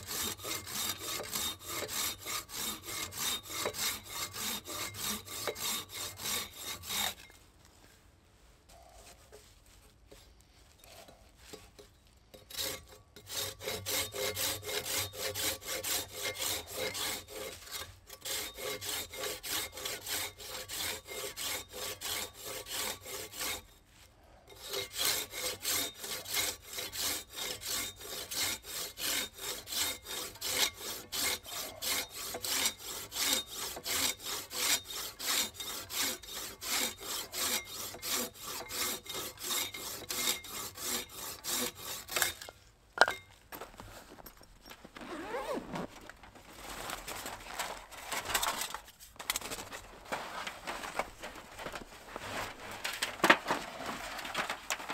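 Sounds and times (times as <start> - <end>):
pruning saw cutting branch: 0.0 - 7.3, 24.6 - 42.5.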